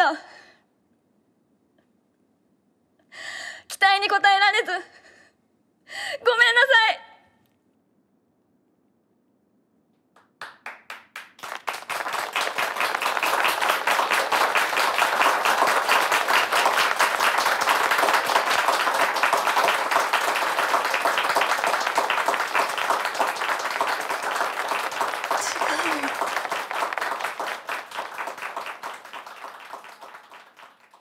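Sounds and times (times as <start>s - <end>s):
audience applause: 10.3s - 31.0s.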